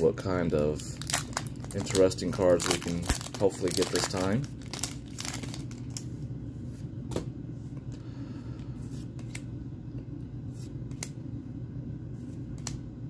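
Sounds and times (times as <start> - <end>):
trading cards sliding: 8.8 - 9.5.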